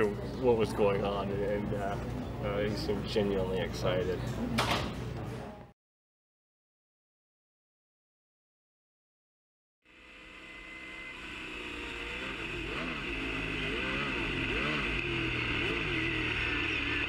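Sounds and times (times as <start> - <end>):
race car engine revving: 9.9 - 17.0.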